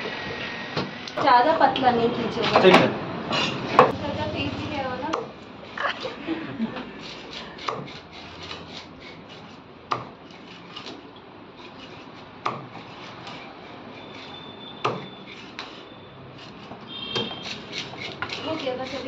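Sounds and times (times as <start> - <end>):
knife scraping fish scales: 5.6 - 19.0.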